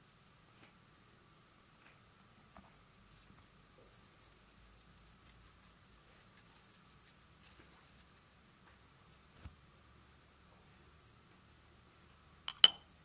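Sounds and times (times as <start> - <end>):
metal spoon rattling in ceramic bowl: 12.5 - 12.8.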